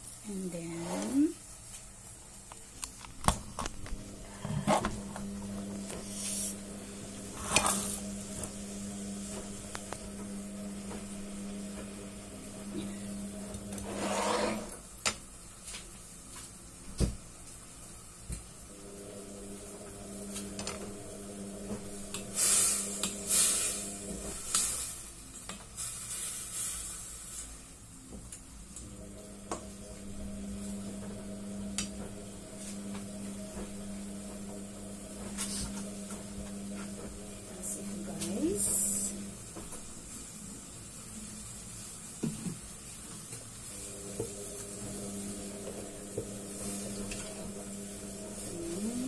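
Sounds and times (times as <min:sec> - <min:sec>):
utensil scraping metal pot: 0:13.7 - 0:14.8.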